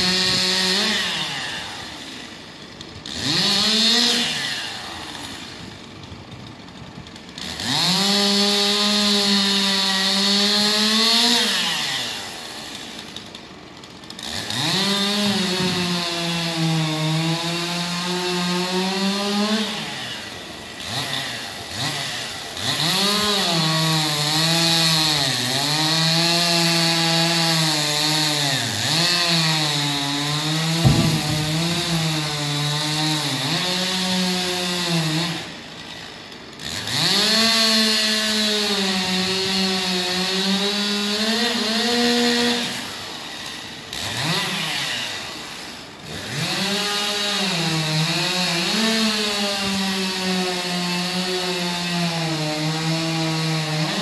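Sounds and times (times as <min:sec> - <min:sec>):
chainsaw cutting wood: 0:00.0 - 0:54.0.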